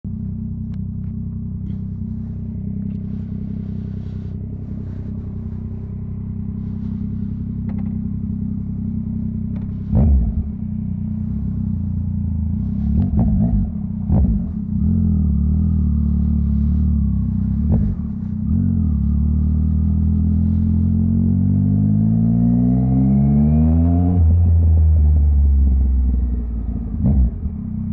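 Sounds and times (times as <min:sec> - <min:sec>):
engine throttle blips: 0:00.0 - 0:27.9
motorcycle engine idling: 0:00.1 - 0:21.1.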